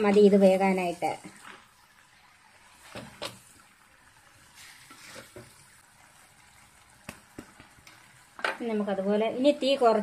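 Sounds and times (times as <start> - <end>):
faint sizzle of simmering: 0.0 - 10.0
wooden spatula scraping clay pot: 4.6 - 5.5.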